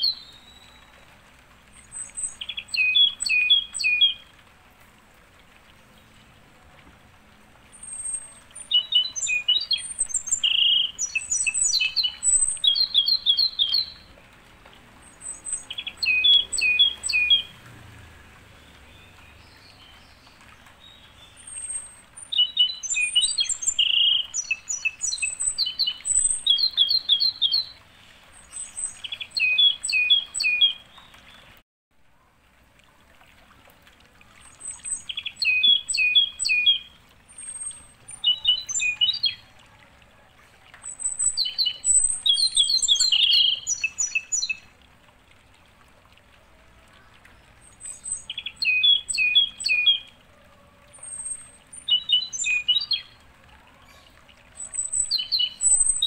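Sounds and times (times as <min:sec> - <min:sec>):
songbirds chirping and trilling: 0:00.0 - 0:04.8, 0:05.6 - 0:31.6, 0:34.3 - 0:56.0.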